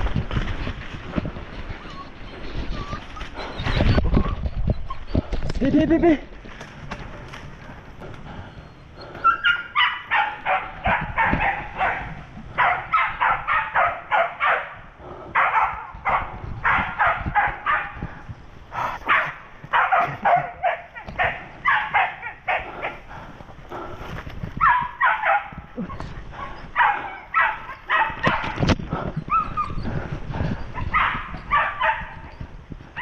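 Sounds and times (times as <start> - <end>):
dogs barking: 9.1 - 18.0, 18.7 - 23.9, 24.6 - 29.8, 30.7 - 32.4.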